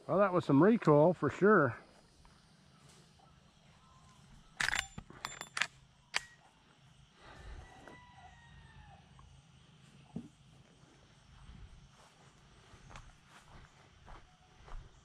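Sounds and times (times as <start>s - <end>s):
rifle metallic clacks and clinks: 4.5s - 6.5s.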